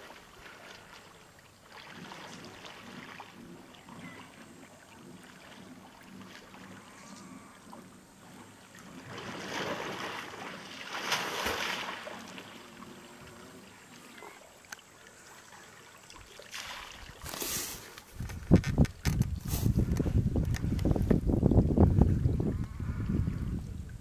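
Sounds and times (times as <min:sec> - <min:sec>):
water splashing from swimming elephant: 0:00.0 - 0:18.0.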